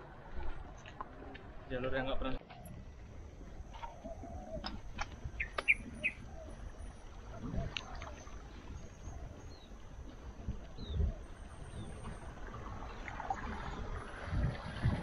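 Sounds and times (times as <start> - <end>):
bicycles rolling on paved path: 0.0 - 15.0
small birds chirping: 3.4 - 13.1.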